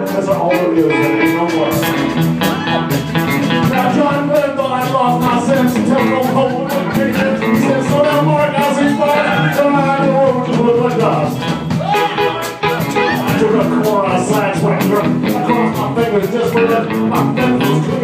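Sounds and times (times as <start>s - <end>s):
drums with cymbals: 0.0s - 18.0s
electric guitar: 0.0s - 18.0s.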